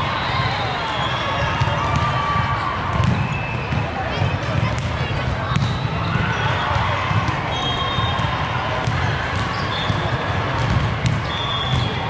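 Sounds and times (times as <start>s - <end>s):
echoing murmur of voices: 0.0s - 12.0s
referee whistle tones: 0.1s - 1.6s, 3.1s - 3.9s, 7.5s - 8.3s, 11.2s - 12.0s
volleyballs smacking and bouncing: 1.4s - 12.0s.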